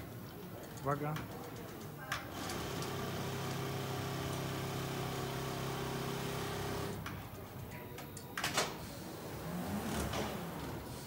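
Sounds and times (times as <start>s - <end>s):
sewing machine motor hum: 2.3s - 7.0s.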